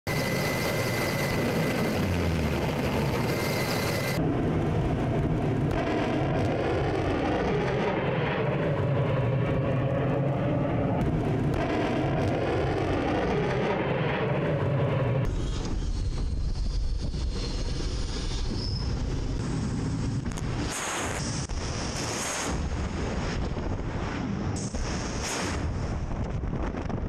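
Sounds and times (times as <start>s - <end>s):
aircraft engine roar: 0.0s - 27.0s
rushing air: 15.3s - 26.8s
thin high whistle: 18.2s - 19.0s.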